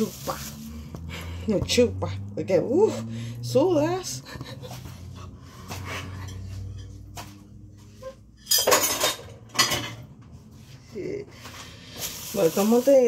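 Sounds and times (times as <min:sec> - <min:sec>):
kitchenware clinking and clattering: 0:05.6 - 0:10.4.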